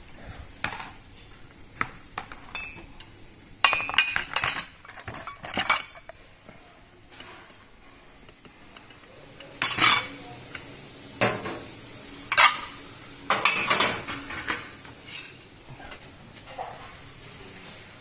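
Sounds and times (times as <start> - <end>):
crockery and cutlery clattering: 2.2 - 6.2, 8.6 - 10.4, 12.3 - 17.1.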